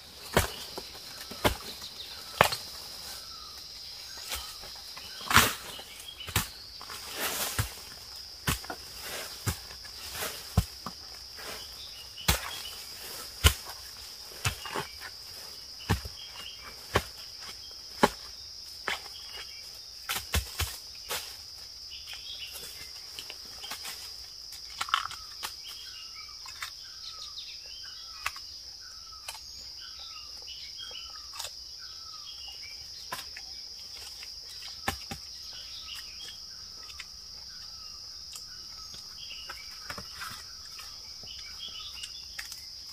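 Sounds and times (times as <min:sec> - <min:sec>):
insect drone: 0:00.0 - 0:42.9
blade chopping into ground: 0:00.2 - 0:02.7, 0:04.3 - 0:11.6, 0:12.2 - 0:15.0, 0:15.8 - 0:19.1.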